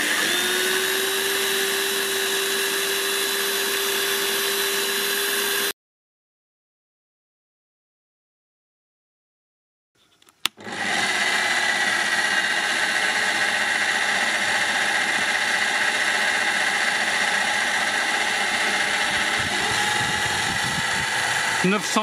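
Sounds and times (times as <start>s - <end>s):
drill motor running: 0.0s - 5.7s, 10.5s - 22.0s.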